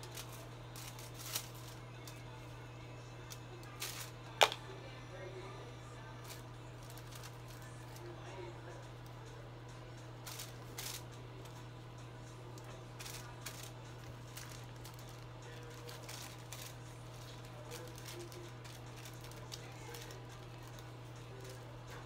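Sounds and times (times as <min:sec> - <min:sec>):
foil crinkling: 0:00.0 - 0:02.4, 0:03.6 - 0:04.6, 0:06.2 - 0:08.1, 0:10.2 - 0:11.1, 0:12.6 - 0:22.0
brush stroking on foil: 0:00.0 - 0:04.3, 0:06.0 - 0:09.3, 0:10.0 - 0:11.7, 0:12.4 - 0:22.0.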